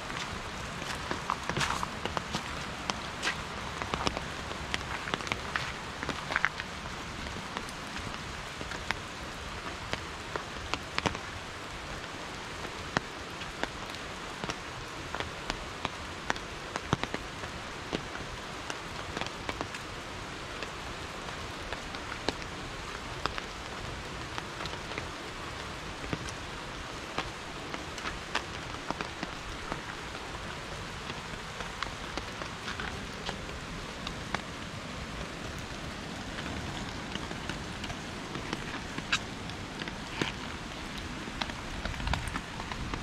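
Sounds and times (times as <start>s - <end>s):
raindrops ticking close by: 0.0s - 43.0s
steady rain falling: 0.0s - 43.0s.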